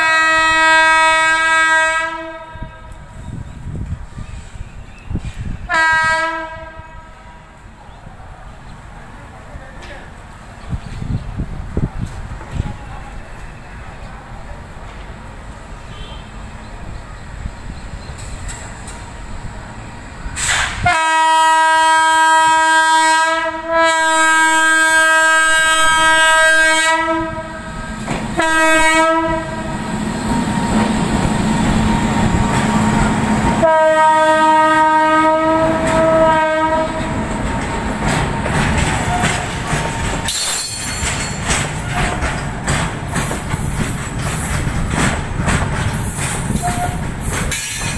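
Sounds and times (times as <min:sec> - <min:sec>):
locomotive air horn blasts: 0:00.0 - 0:03.0, 0:05.7 - 0:07.5, 0:15.9 - 0:16.3, 0:20.4 - 0:29.9, 0:33.6 - 0:37.1, 0:46.6 - 0:47.0
train wheels clattering over joints: 0:37.0 - 0:47.9.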